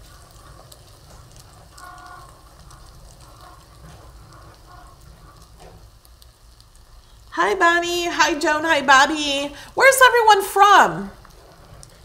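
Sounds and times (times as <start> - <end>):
chicken sizzling in foil packet: 0.0 - 8.4, 11.1 - 12.0.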